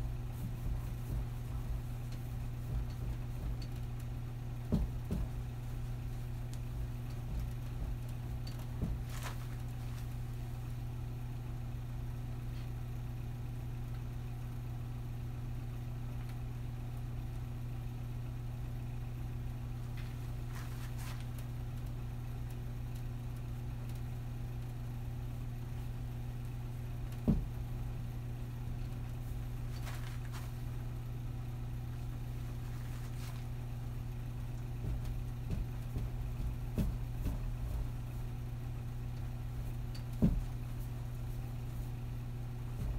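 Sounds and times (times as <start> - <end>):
steady low hum: 0.0 - 42.9
soft knock: 4.7 - 5.4, 6.7 - 9.6, 27.2 - 27.6, 34.8 - 38.2, 39.9 - 40.9.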